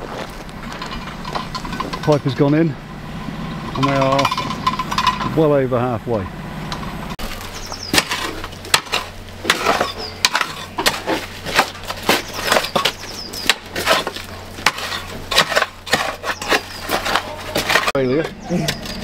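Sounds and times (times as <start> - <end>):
steady low hum: 0.0 - 19.0
spade crunching into stony soil: 7.2 - 18.0.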